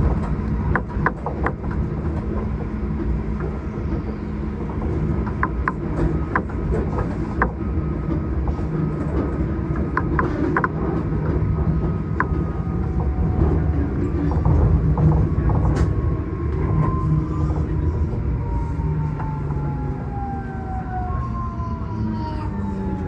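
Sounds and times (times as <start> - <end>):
tram running low rumble: 0.0 - 23.0.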